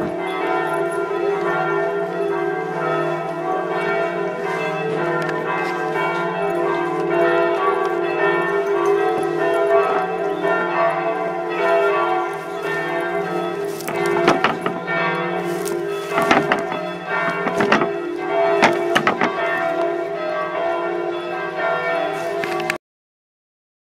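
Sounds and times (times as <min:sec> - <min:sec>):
bells ringing: 0:00.0 - 0:22.8
sharp knocks: 0:13.9 - 0:14.9, 0:16.1 - 0:18.0, 0:18.6 - 0:19.6.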